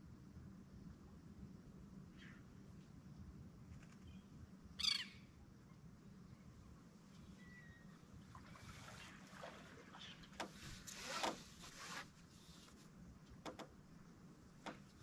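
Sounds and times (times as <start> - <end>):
water sloshing against hull: 7.9 - 15.0
light knocks: 14.6 - 15.0.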